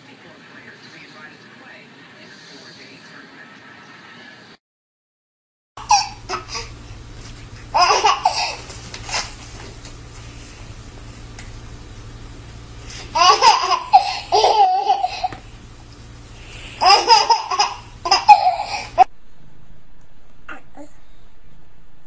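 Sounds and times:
small child laughing: 5.8s - 6.8s, 7.7s - 9.4s, 13.1s - 15.4s, 16.8s - 19.1s.

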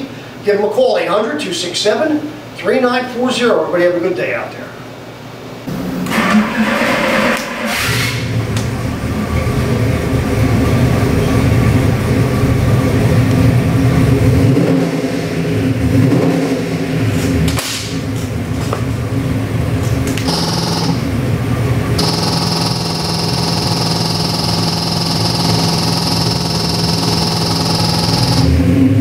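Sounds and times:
engine running steadily: 8.2s - 29.0s.

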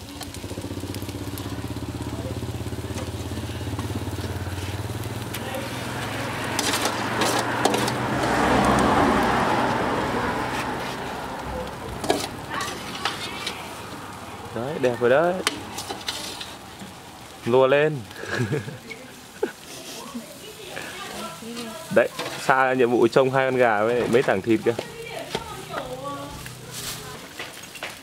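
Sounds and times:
small engine running: 0.0s - 10.6s
hiss: 2.6s - 5.0s.

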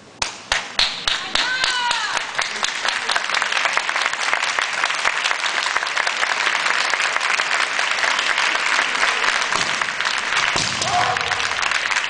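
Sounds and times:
audience applauding: 0.5s - 12.0s.

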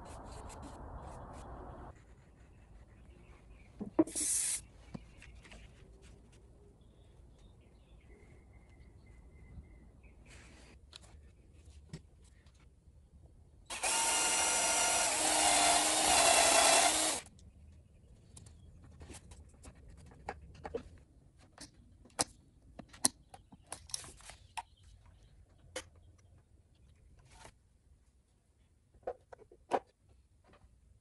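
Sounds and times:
cordless drill drilling into wood: 13.7s - 17.2s.

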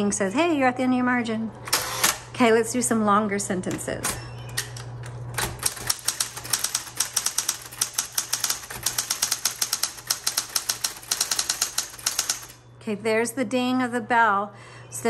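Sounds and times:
electric typewriter motor humming: 1.7s - 2.3s, 3.9s - 12.6s
typebar strikes: 5.4s - 12.6s.

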